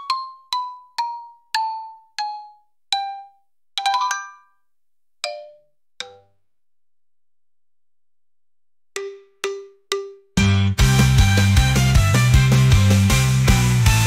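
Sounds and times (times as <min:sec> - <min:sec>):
xylophone notes: 0:00.0 - 0:04.6, 0:05.2 - 0:06.4, 0:09.0 - 0:13.0.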